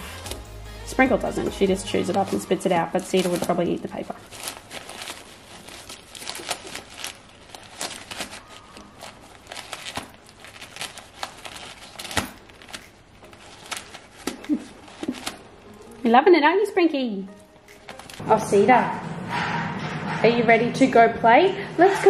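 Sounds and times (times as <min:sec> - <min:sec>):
paper crinkling and tearing: 0:01.3 - 0:16.1, 0:17.3 - 0:18.2.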